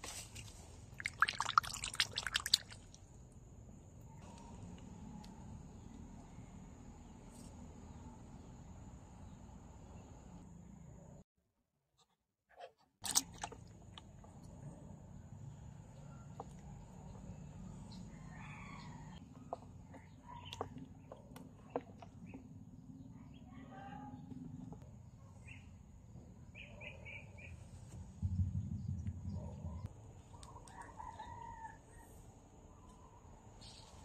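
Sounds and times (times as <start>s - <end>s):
low rumble: 28.0s - 29.9s.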